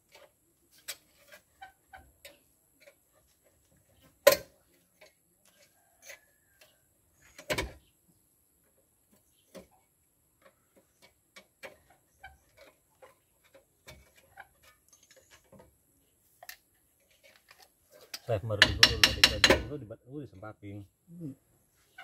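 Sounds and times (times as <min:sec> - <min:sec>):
metal knock: 0:18.6 - 0:19.8.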